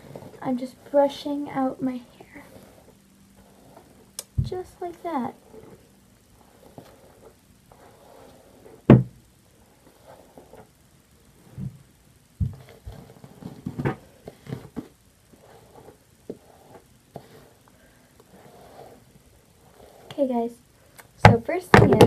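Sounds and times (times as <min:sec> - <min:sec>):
hair rustling: 0:00.0 - 0:09.0
knocks and bumps: 0:21.2 - 0:22.0.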